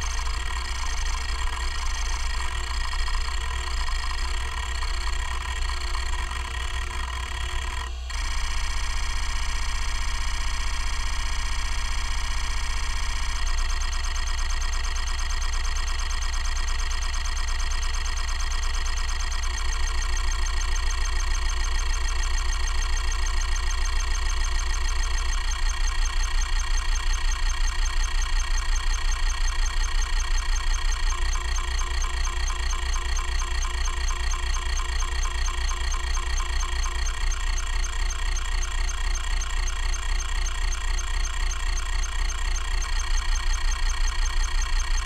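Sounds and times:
hard drive head seeking buzz: 0.0 - 10.5
hard drive spindle motor spinning: 0.0 - 45.0.

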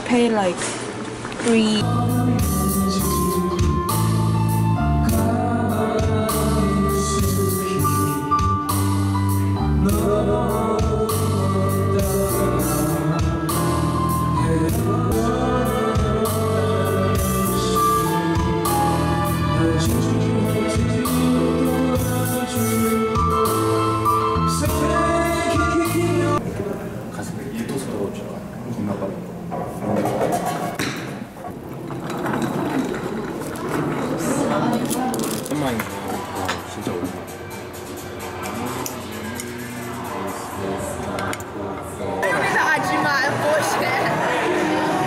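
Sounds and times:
person singing into a microphone: 1.8 - 8.9, 9.7 - 26.4
backing track music: 1.8 - 26.4.

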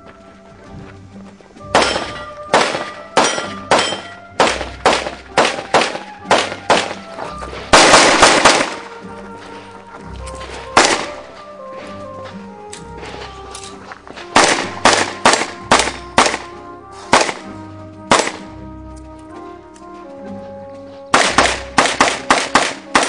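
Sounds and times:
background music: 0.0 - 23.0
handgun shots: 1.8 - 7.1, 7.7 - 9.0, 10.8 - 11.3, 14.4 - 18.5, 21.1 - 23.0.

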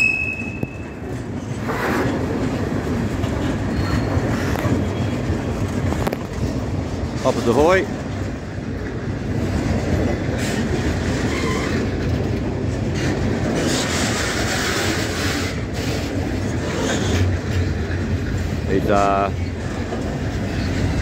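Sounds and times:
train wheels rumbling on rails: 0.0 - 21.0.

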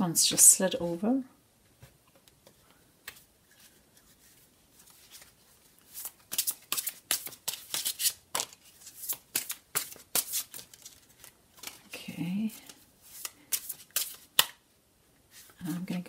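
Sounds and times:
cards being shuffled: 2.4 - 14.6.

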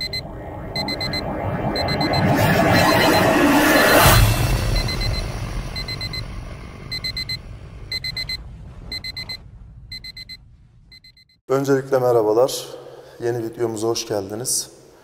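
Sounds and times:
low rumble: 0.0 - 11.3
alarm clock beeping: 0.0 - 11.4.

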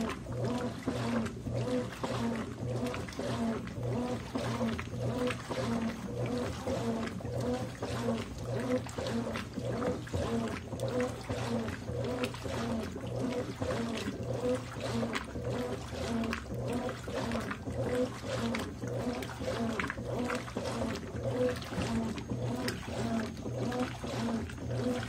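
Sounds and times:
washing machine agitating: 0.0 - 25.0
water sloshing in tub: 0.0 - 25.0.

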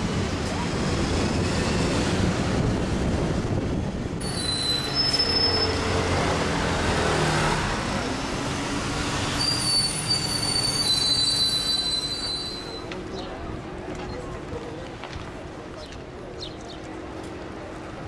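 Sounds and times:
bus engine rumble: 0.0 - 18.0
city traffic: 0.0 - 18.0
high metallic squealing: 4.2 - 6.0, 9.3 - 12.9.

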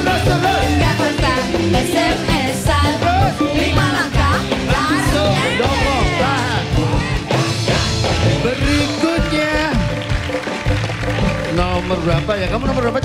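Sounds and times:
person singing: 0.0 - 9.8
dangdut band music: 0.0 - 13.0.

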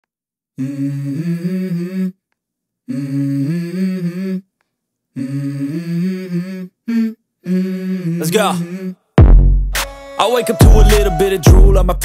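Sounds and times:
person humming a melody: 0.6 - 2.2, 2.9 - 4.5, 5.2 - 9.0, 10.4 - 12.0.

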